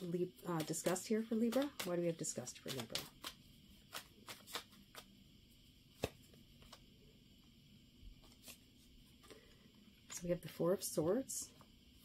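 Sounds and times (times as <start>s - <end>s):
sharp card snap: 2.6s - 5.1s, 6.0s - 6.3s
soft card flicks: 6.0s - 6.8s.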